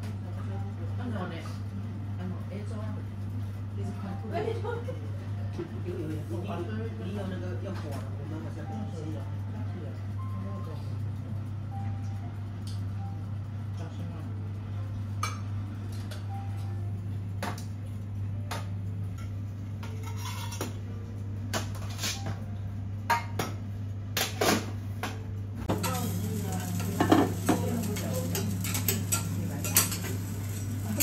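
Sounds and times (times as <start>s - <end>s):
steady low hum: 0.0s - 31.0s
metal utensils clinking on plates: 19.8s - 20.8s, 25.7s - 31.0s.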